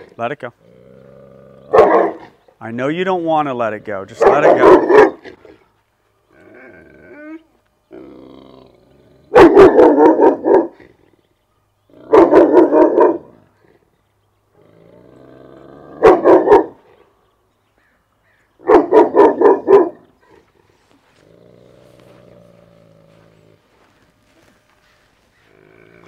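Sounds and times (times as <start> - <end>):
dog growling: 0.0 - 2.4, 6.2 - 9.5, 11.9 - 17.0, 18.7 - 24.6, 25.4 - 26.0
dog barking deeply: 1.6 - 2.4, 4.0 - 5.6, 9.3 - 10.9, 11.9 - 13.5, 15.8 - 16.9, 18.6 - 20.4.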